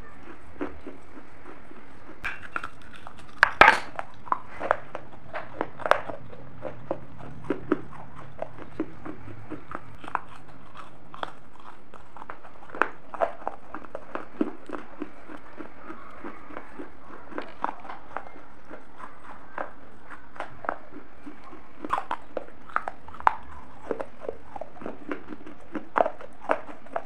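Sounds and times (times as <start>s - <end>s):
biting and crunching baked clay: 0.0s - 27.0s.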